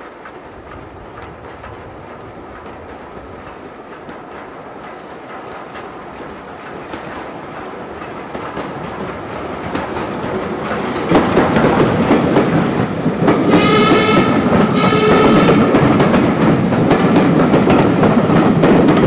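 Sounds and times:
wheels clattering over rail joints: 0:00.0 - 0:13.8
steam whistle blasts: 0:13.5 - 0:15.8.

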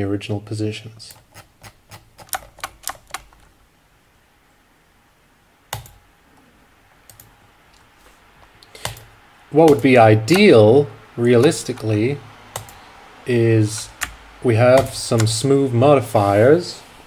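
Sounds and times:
keyboard keys clacking: 0:01.1 - 0:03.5, 0:08.8 - 0:10.6, 0:13.6 - 0:15.5.

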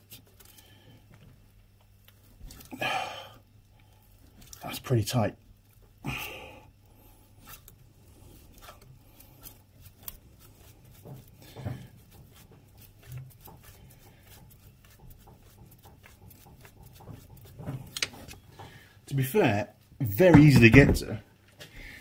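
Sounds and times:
oil filter scraping and clicking: 0:03.6 - 0:06.0, 0:06.8 - 0:19.1.

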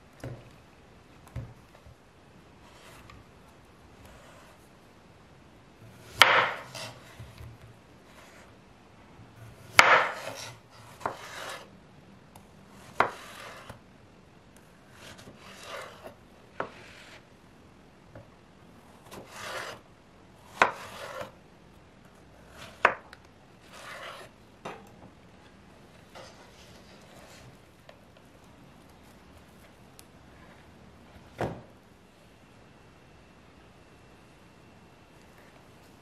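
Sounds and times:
knife cutting zucchini: 0:09.4 - 0:11.7, 0:12.7 - 0:13.8, 0:19.0 - 0:19.8, 0:20.5 - 0:21.4, 0:22.4 - 0:24.4.

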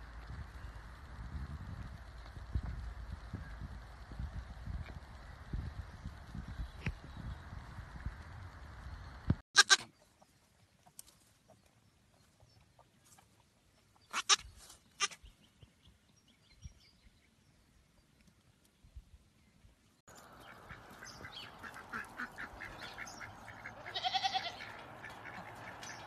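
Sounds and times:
baby goat bleating: 0:09.6 - 0:09.9, 0:14.1 - 0:15.2, 0:23.8 - 0:24.7.

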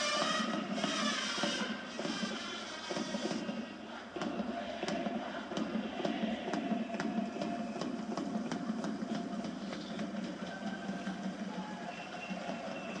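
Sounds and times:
crowd singing in unison: 0:00.0 - 0:13.0
steady drum beat: 0:00.0 - 0:13.0.

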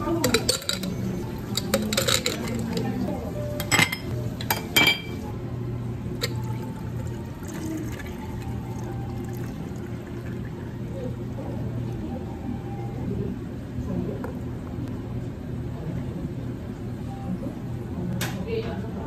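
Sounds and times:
water pouring over ice: 0:06.2 - 0:10.7.

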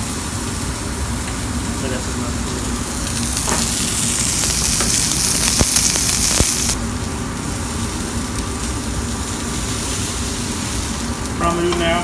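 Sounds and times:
steak sizzling in oil: 0:02.4 - 0:12.0.

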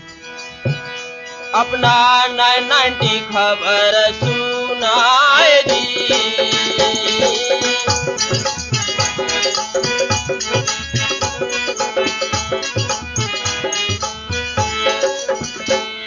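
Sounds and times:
held melodic notes: 0:00.0 - 0:16.0
steady drum beat: 0:00.6 - 0:01.0, 0:04.2 - 0:15.8.

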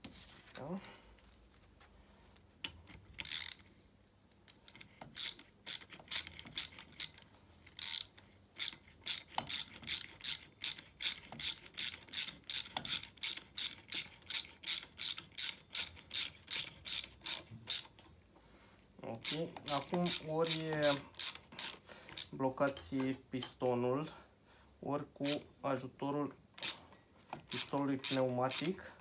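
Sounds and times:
ratchet wrench clicking: 0:02.6 - 0:03.6, 0:04.5 - 0:18.1, 0:19.2 - 0:22.9, 0:26.6 - 0:26.8, 0:27.4 - 0:28.8.

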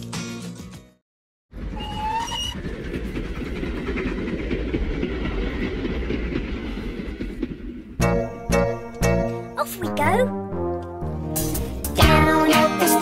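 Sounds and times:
kiddie train rumbling on track: 0:01.5 - 0:10.2.

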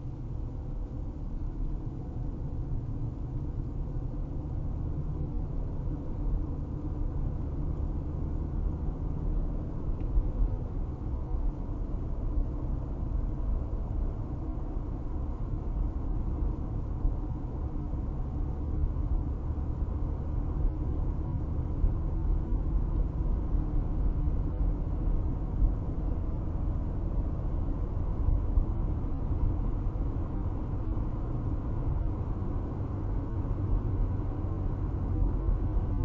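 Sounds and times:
car cabin road rumble: 0:00.0 - 0:36.0.

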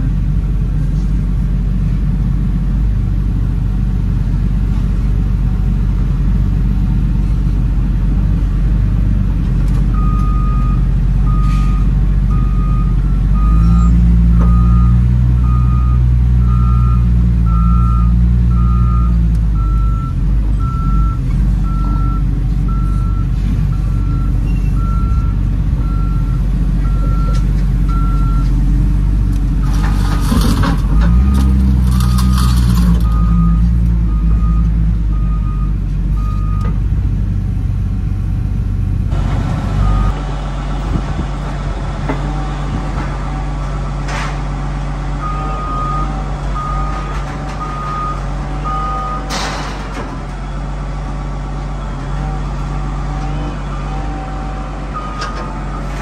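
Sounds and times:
diesel engine running: 0:00.0 - 0:56.0
reversing alarm beeping: 0:10.0 - 0:28.5, 0:45.2 - 0:49.3, 0:52.2 - 0:56.0.

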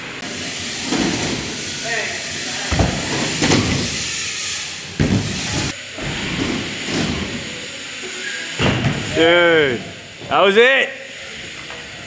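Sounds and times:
bike thudding on ramp: 0:02.7 - 0:04.1, 0:04.9 - 0:07.6, 0:08.6 - 0:09.2.

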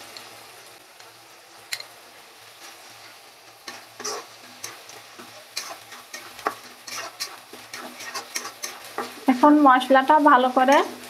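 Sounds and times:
paste sizzling in hot oil: 0:00.0 - 0:11.0
metal spatula scraping pan: 0:03.6 - 0:09.3.

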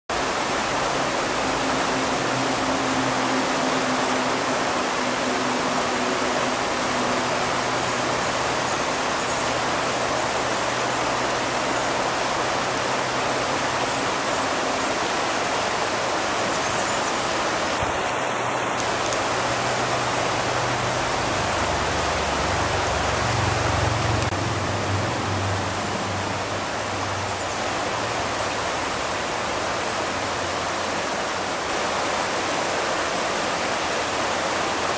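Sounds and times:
river rushing over rocks: 0:00.1 - 0:34.9.

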